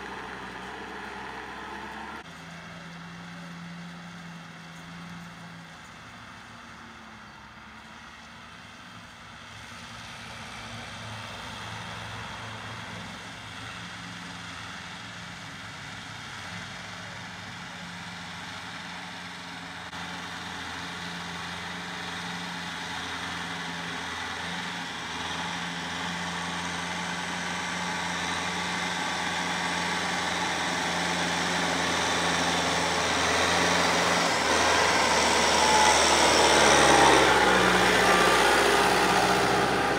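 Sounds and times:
tractor diesel engine under load: 0.0 - 39.9
rotary tiller in soil: 16.5 - 39.9.

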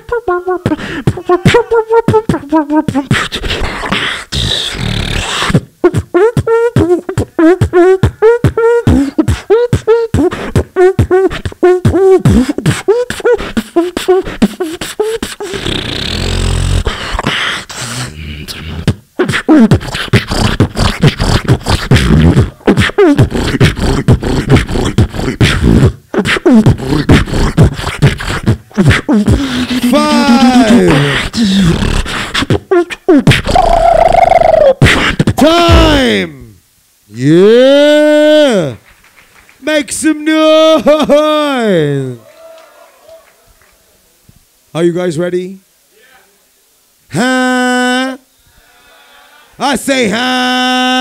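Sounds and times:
beatboxing vocal drum hits: 0.0 - 36.6.

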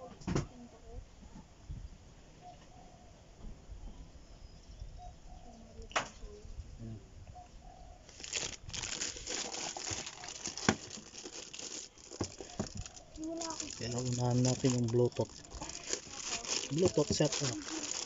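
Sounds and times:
plastic packaging crinkling: 8.1 - 18.0.

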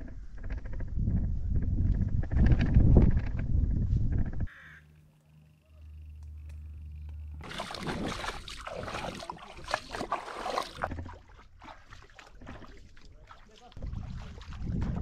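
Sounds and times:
feet splashing through water: 7.4 - 15.0.

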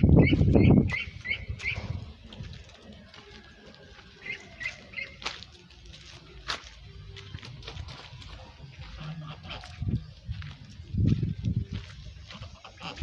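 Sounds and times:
duckling peeping: 0.0 - 2.0, 4.2 - 5.2.

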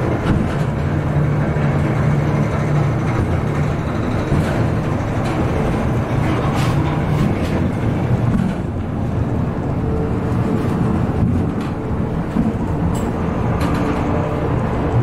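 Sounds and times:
funicular car rumbling on rails: 0.0 - 15.0.

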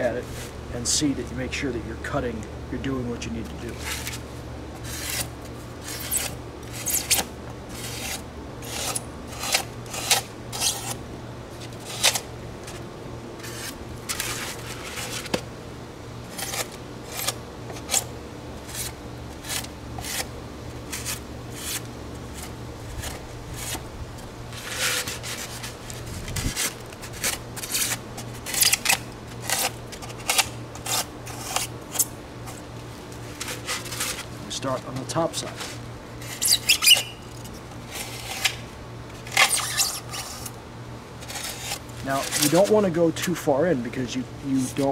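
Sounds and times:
knife cutting styrofoam: 4.8 - 11.0, 11.6 - 12.3, 16.3 - 20.3, 20.9 - 23.8, 24.5 - 32.6, 39.2 - 40.6, 41.2 - 42.8.

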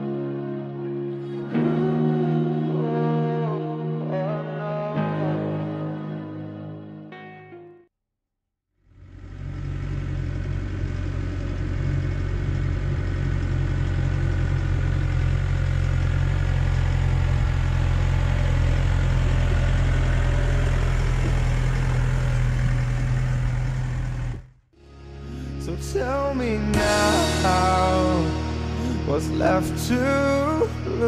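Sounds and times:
tractor diesel engine under load: 8.9 - 24.7.

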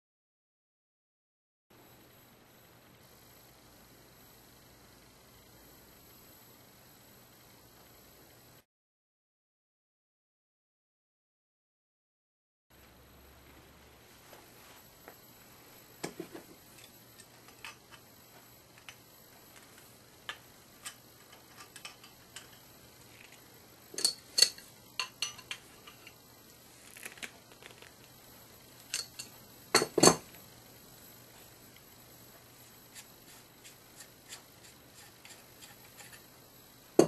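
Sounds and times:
metal tool clicks and clinks: 24.0 - 26.2, 28.9 - 30.2.

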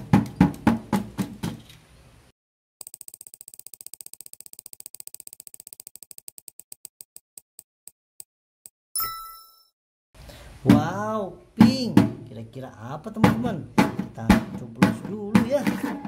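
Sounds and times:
rattle of clicks: 2.8 - 6.9
bright bell-like ding: 9.0 - 9.7.

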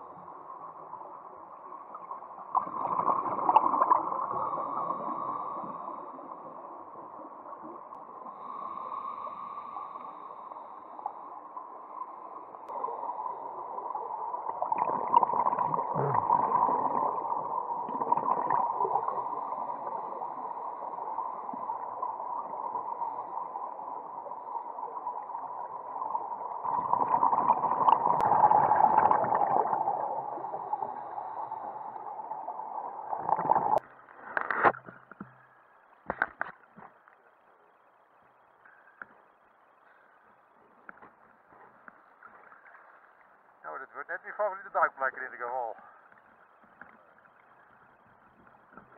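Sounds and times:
regulator bubbles gurgling: 0.0 - 9.6, 11.1 - 33.8
steady underwater hum: 0.0 - 48.9.

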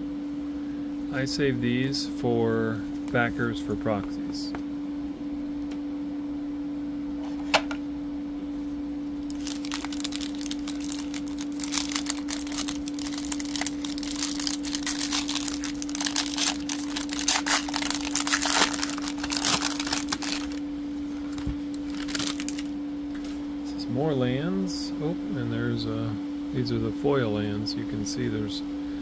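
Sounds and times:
steady low hum: 0.0 - 29.0
plastic wrapper crinkling: 9.2 - 22.7.

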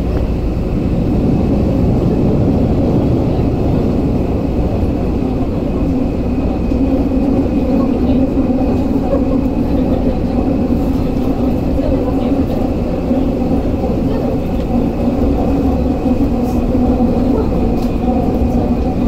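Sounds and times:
steady hum: 0.0 - 19.0
train wheels rumbling on rail: 0.0 - 19.0.

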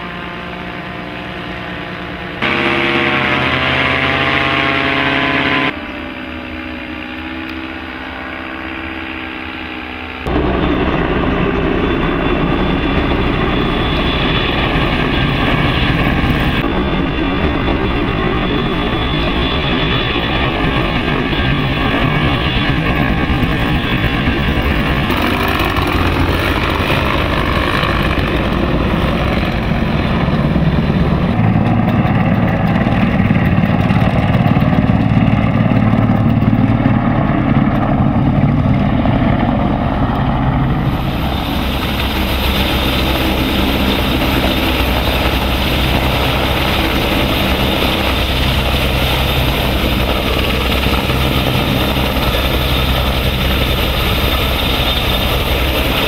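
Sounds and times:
helicopter flying low: 0.0 - 56.0
paramotor engine and propeller: 0.0 - 56.0.

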